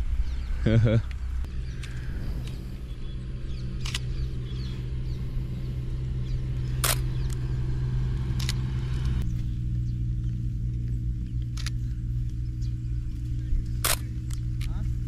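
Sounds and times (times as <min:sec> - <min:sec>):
motorbike engine idling: 0:01.4 - 0:15.0
camera shutter clicks: 0:03.8 - 0:04.1, 0:06.8 - 0:07.4, 0:08.3 - 0:08.8, 0:13.8 - 0:14.7.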